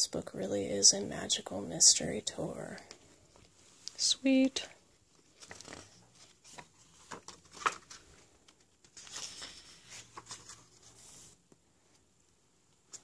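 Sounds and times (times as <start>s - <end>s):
book pages turning: 2.7s - 12.1s, 12.7s - 13.0s.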